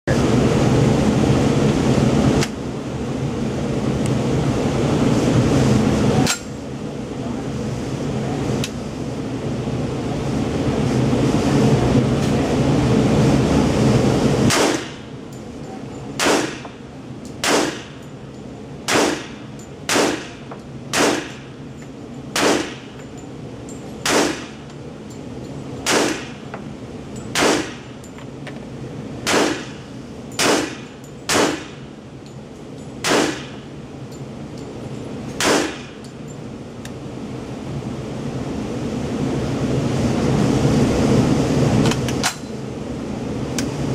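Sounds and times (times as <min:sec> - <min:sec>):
loud steady noise: 0:00.1 - 0:43.9
single gunshots with echo: 0:30.4 - 0:31.7, 0:33.0 - 0:33.5, 0:35.4 - 0:36.0.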